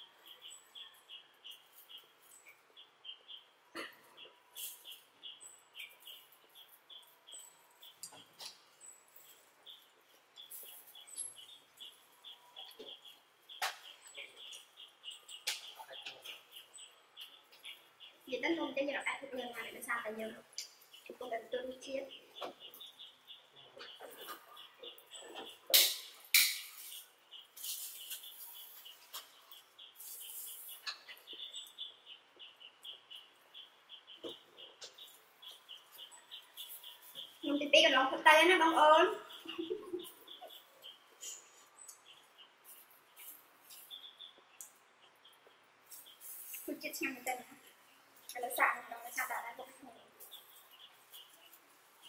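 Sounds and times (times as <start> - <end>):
faint high chirps: 26.6 - 52.0.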